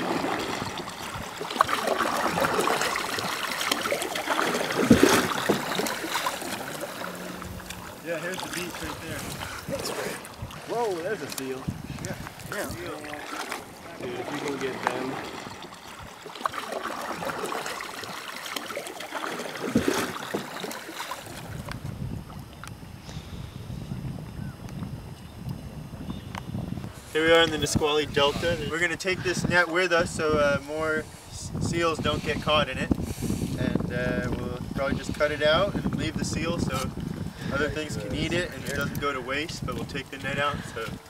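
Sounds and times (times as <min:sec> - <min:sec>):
canoe paddles dipping in water: 0:00.0 - 0:23.4, 0:32.9 - 0:41.0
water splashing against hull: 0:00.0 - 0:23.5, 0:26.3 - 0:41.0.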